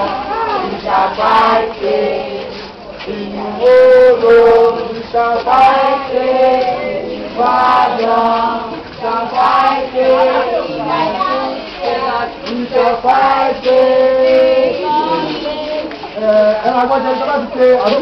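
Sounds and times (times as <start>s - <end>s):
mixed choir singing: 0.0s - 18.0s.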